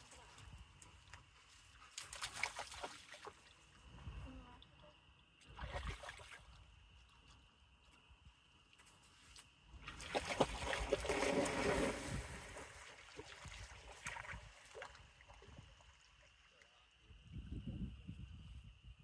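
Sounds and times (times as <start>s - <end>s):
water splashing from swimming dog: 1.8s - 3.6s, 5.5s - 6.6s, 9.8s - 16.6s.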